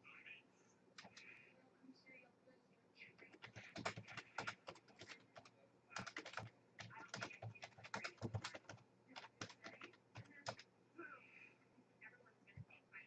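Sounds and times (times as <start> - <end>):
faint speech: 0.0 - 13.0
typing on a computer keyboard: 1.0 - 1.3, 3.3 - 10.7.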